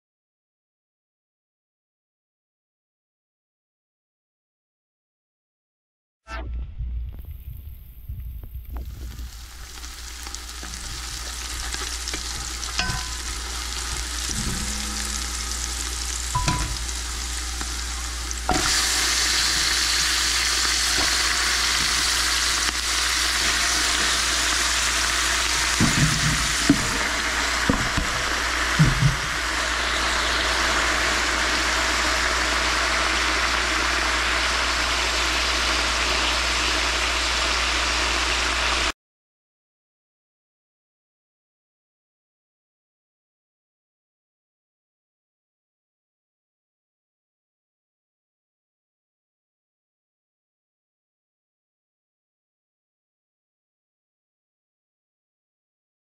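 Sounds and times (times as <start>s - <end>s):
greens sizzling in a pan: 8.6s - 38.9s
knocks of stirring: 10.6s - 15.4s.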